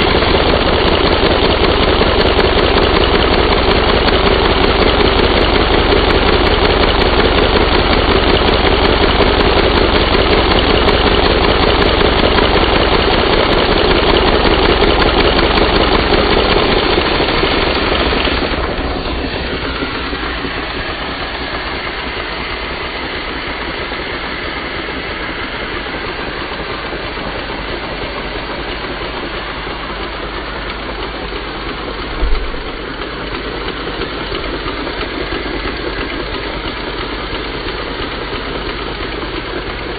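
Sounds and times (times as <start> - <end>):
toy engine rhythmic clatter: 0.0 - 39.9
vacuum cleaner drone: 0.0 - 39.9
short thump: 32.1 - 32.8.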